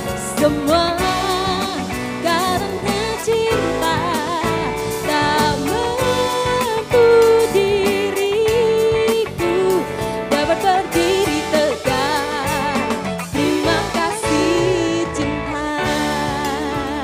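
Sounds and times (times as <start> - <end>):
live band playing: 0.0 - 17.0
woman singing a ballad: 0.0 - 17.0.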